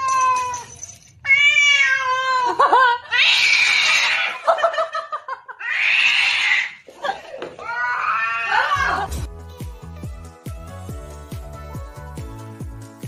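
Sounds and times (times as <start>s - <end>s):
cat meowing: 1.2s - 2.4s, 3.1s - 4.4s, 7.6s - 9.1s.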